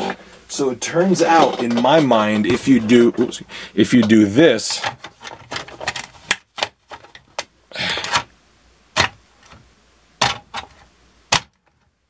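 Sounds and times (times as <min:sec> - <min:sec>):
plastic clicks and knocks: 0:10.2 - 0:11.9.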